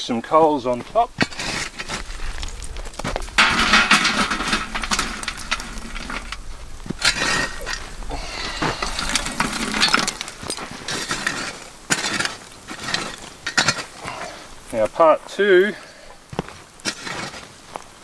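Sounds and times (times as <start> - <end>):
shovel scraping: 0.8 - 14.0, 16.8 - 17.5
charcoal clinking onto tin lid: 1.2 - 12.3.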